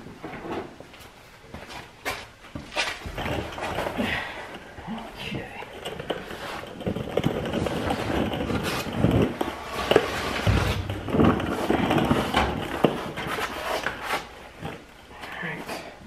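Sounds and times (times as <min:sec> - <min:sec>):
loud thumps: 0:07.4 - 0:13.0.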